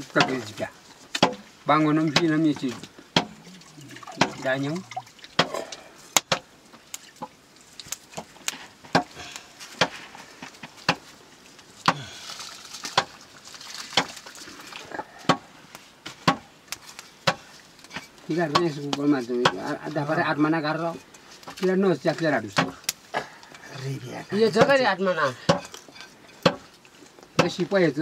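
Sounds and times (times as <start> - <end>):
sharp knocks: 16.2 - 16.5.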